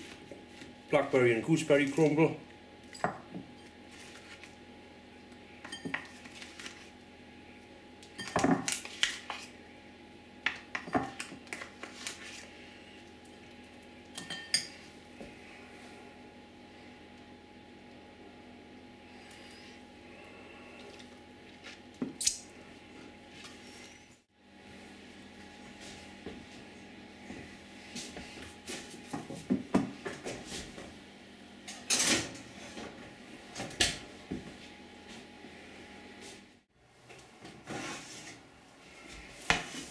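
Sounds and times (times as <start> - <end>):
metal spoon clinking on a bowl: 14.2 - 14.7.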